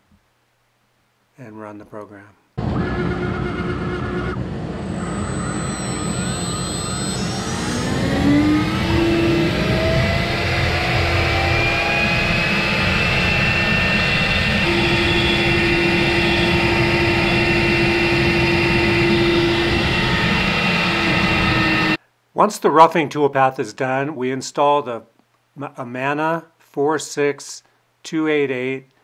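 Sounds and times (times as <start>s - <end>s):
router spindle whine: 2.8s - 22.0s
bit cutting wood: 6.1s - 22.0s.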